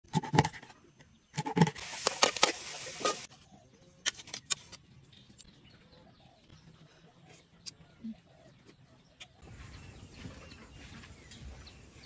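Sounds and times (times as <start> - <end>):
hiss with crackles: 1.8 - 3.3.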